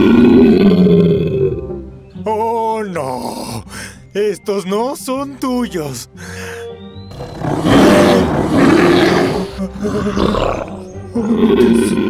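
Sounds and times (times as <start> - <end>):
creature roaring: 0.0 - 1.6, 7.1 - 12.0.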